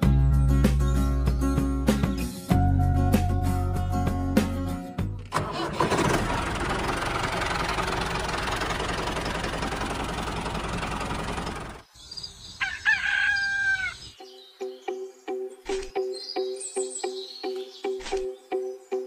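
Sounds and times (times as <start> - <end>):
tractor engine running: 5.2 - 11.8
rooster crowing: 12.6 - 14.1.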